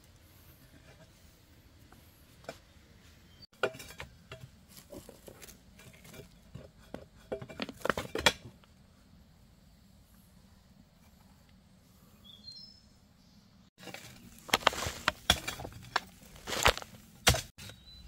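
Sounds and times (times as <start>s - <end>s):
digging tool scraping soil and stones: 3.5s - 8.2s, 13.8s - 17.8s.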